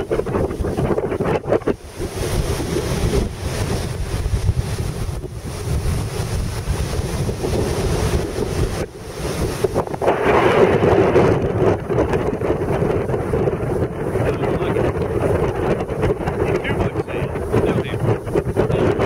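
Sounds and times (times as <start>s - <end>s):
surf breaking on shore: 0.0s - 19.0s
wind buffeting microphone: 0.0s - 19.0s.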